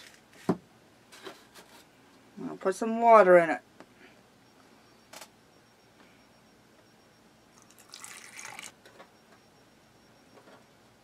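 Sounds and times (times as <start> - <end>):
water trickling into plastic dish: 7.6 - 8.7.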